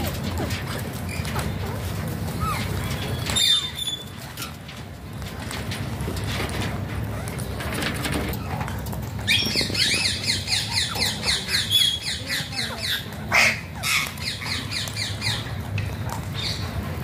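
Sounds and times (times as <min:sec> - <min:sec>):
parakeets squawking: 0:09.2 - 0:16.8.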